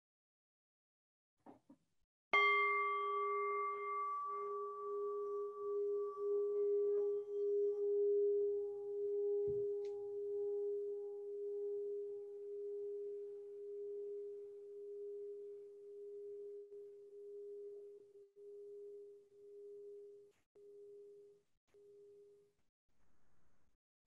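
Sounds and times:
singing bowl ringing: 2.4 - 20.1.

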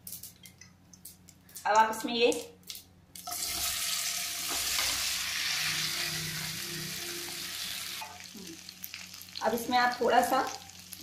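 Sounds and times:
food sizzling in hot oil: 3.2 - 11.0.

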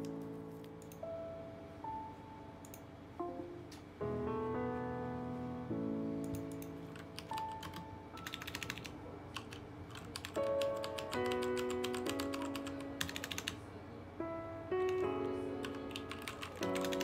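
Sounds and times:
mechanical keyboard typing: 6.2 - 13.6, 14.9 - 17.0.

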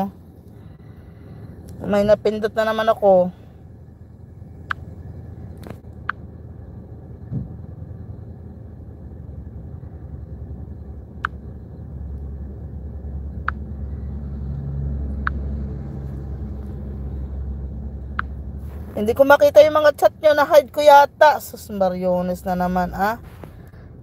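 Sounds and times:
car engine idling: 0.0 - 24.0.

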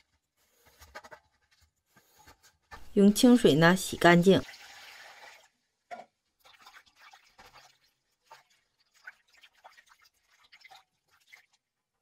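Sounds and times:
soft water splashes and drips: 4.4 - 5.6, 6.3 - 11.8.

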